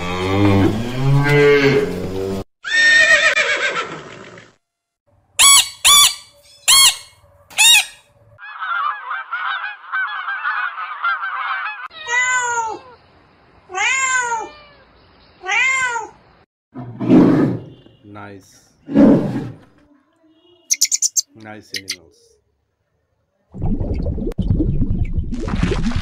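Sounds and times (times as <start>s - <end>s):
short sharp calls: 5.4s - 8.0s, 20.6s - 22.0s
cat meowing: 11.9s - 13.0s, 13.7s - 16.2s
geese chattering: 20.7s - 22.0s.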